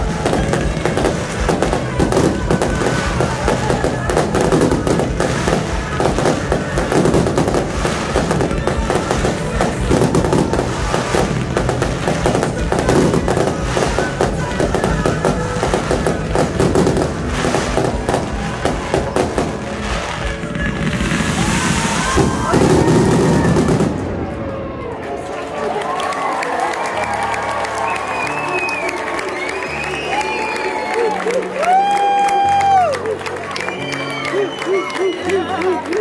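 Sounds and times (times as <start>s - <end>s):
fireworks bursting and crackling: 0.0s - 25.8s
music playing: 0.0s - 36.0s.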